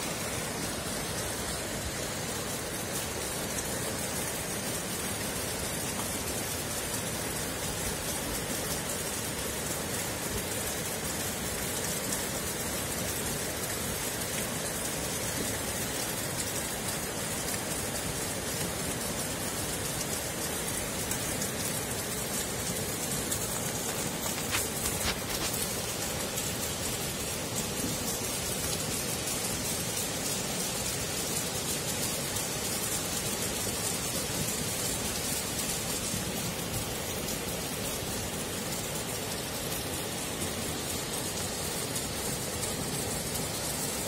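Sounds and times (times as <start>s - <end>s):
rushing floodwater and rain: 0.0s - 44.0s.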